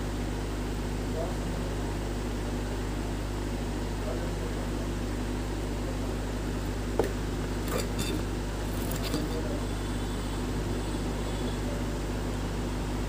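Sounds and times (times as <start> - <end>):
background hum: 4.0 - 13.0.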